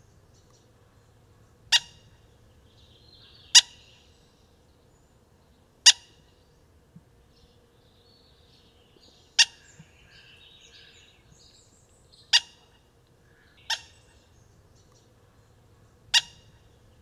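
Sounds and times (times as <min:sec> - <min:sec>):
faint bird chirping: 0:00.0 - 0:17.0
hawk calls: 0:00.9 - 0:04.0, 0:09.4 - 0:11.0, 0:12.3 - 0:14.4, 0:15.3 - 0:17.0
hawk kik call: 0:16.1 - 0:16.6.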